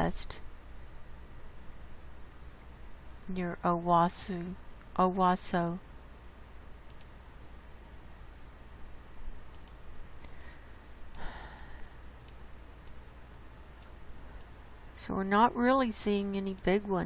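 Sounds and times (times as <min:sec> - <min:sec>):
faint low hum: 0:00.0 - 0:17.0
computer mouse clicks: 0:06.8 - 0:07.2, 0:09.5 - 0:10.5, 0:11.1 - 0:14.6
person breathing: 0:10.2 - 0:12.0.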